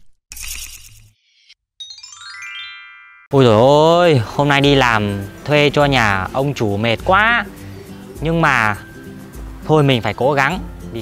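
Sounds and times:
cascade of descending chimes: 1.8 - 3.4.

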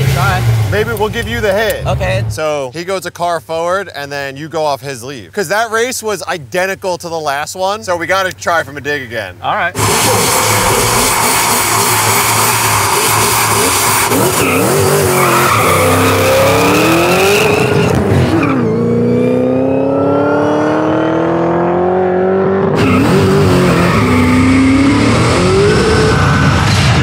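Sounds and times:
cars accelerating hard: 9.8 - 27.0.

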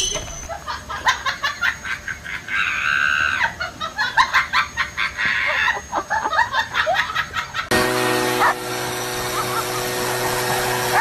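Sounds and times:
high squeals: 0.0 - 0.6.

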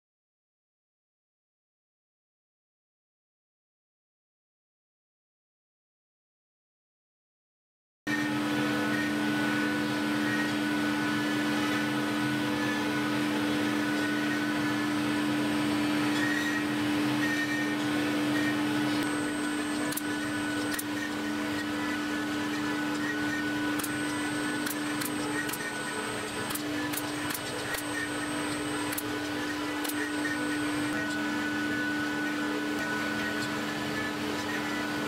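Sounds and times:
workshop machinery hum: 8.1 - 35.0.

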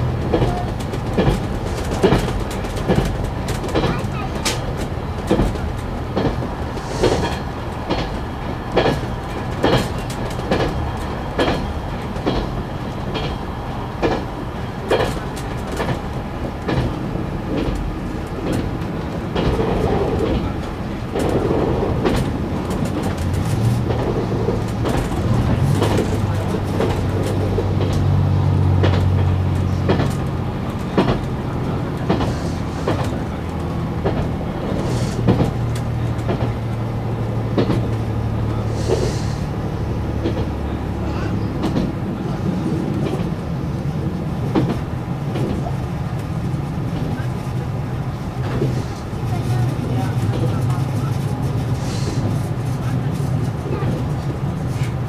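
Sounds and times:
wheels clicking over rail joints: 0.0 - 39.4, 40.0 - 55.0.

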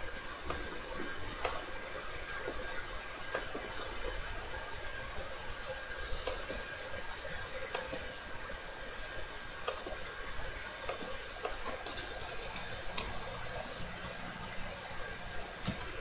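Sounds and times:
steady hiss: 0.0 - 16.0
keyboard and mouse clicks: 11.8 - 14.2, 15.6 - 16.0.

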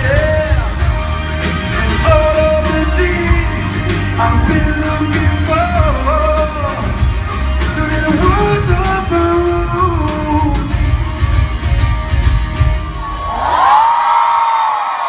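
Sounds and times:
person singing: 0.0 - 11.7
live pop band: 0.0 - 15.0.

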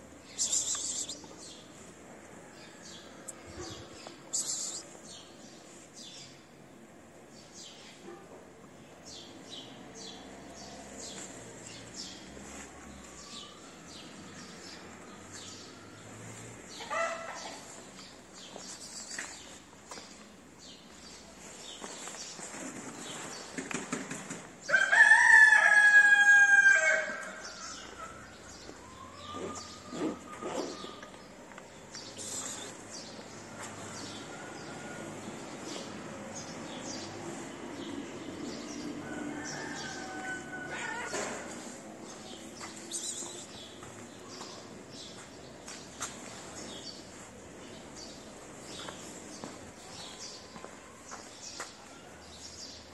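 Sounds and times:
small birds chirping: 0.2 - 1.8, 3.3 - 6.4, 17.4 - 22.5, 27.5 - 33.4, 42.3 - 47.0
rooster crowing: 24.7 - 27.4, 39.0 - 41.5.

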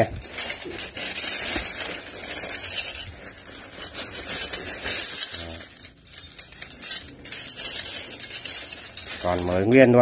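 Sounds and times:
plastic bag crinkling: 0.0 - 9.9
metal cutlery clinking: 3.8 - 10.0.

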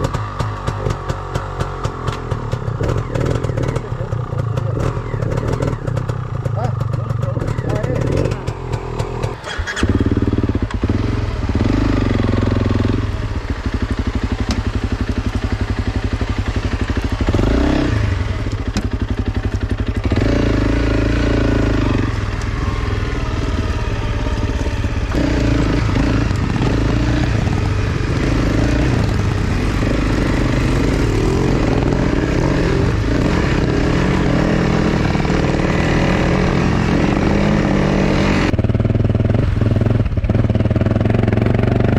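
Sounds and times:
motorcycle engine revving: 0.0 - 41.9.

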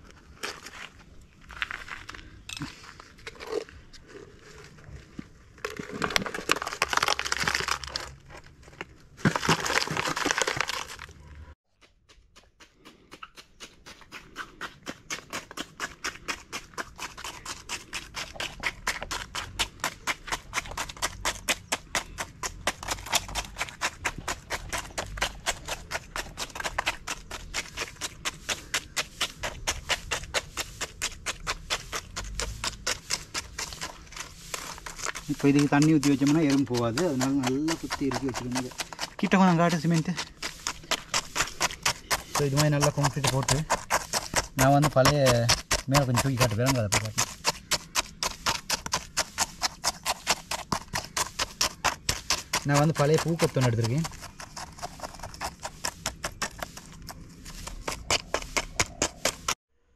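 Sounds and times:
wet cement scraping and pouring: 0.0 - 11.6, 13.6 - 59.6
stick tapping cement: 11.8 - 59.6.

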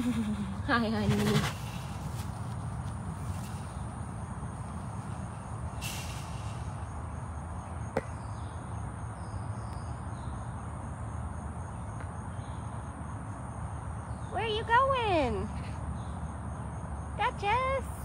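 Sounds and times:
insects droning: 0.0 - 18.0
brief hiss: 5.8 - 6.9.

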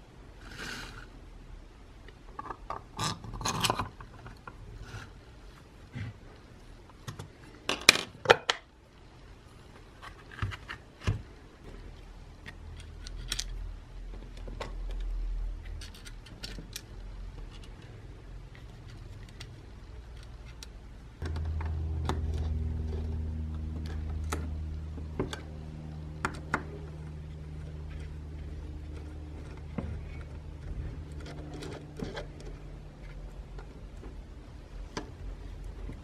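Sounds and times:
steady low hum: 11.0 - 36.0
small parts clicking and knocking: 12.4 - 34.2.

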